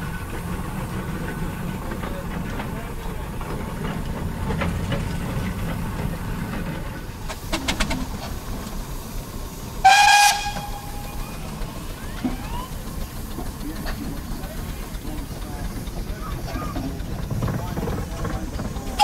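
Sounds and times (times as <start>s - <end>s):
steam roller running: 0.0s - 19.0s
steam whistle blast: 9.8s - 12.7s.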